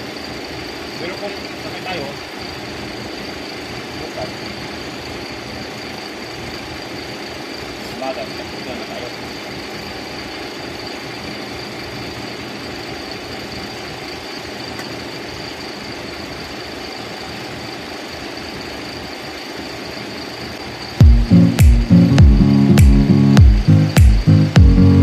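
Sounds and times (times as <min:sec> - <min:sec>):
loud music with thumping beat: 0:21.0 - 0:25.0.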